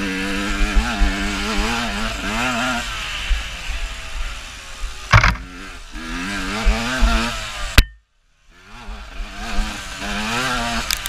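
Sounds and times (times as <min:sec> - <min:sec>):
dirt bike engine revving: 0:00.0 - 0:11.0
loud knock: 0:05.1 - 0:05.4
sharp click: 0:05.1 - 0:05.4.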